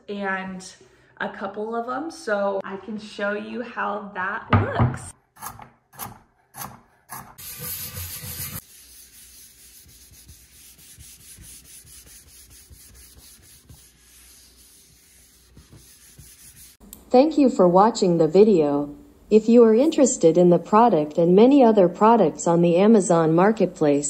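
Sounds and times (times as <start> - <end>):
knife chopping on wooden board: 5.4 - 7.4
pad rubbing over wooden board: 7.1 - 16.8.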